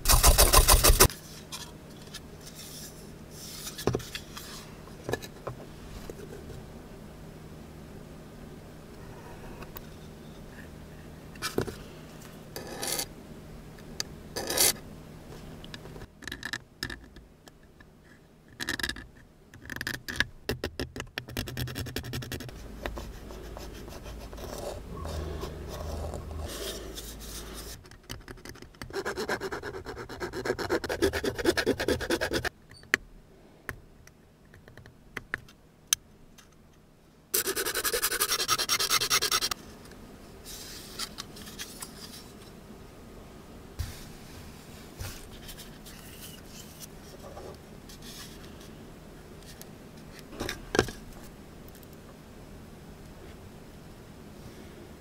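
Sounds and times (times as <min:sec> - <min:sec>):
pencil scratching on paper: 0:22.1 - 0:27.8, 0:28.9 - 0:32.5, 0:37.4 - 0:39.5
needle file rasping on plastic: 0:28.3 - 0:32.5, 0:37.4 - 0:39.6.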